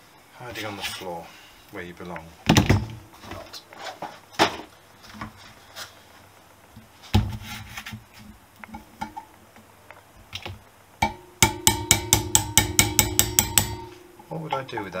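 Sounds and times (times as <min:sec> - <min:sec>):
hammer striking metal drift: 0:11.0 - 0:14.7.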